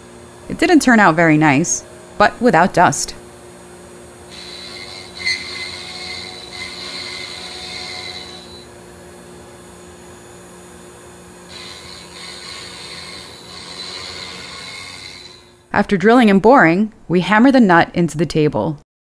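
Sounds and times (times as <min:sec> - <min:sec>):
high machine whine: 0:03.3 - 0:15.7
router spindle humming: 0:04.3 - 0:08.7, 0:11.5 - 0:15.7.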